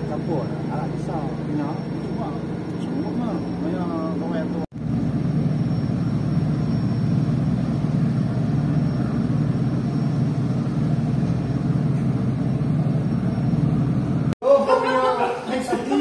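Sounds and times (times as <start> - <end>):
ship engines rumbling: 0.0 - 16.0.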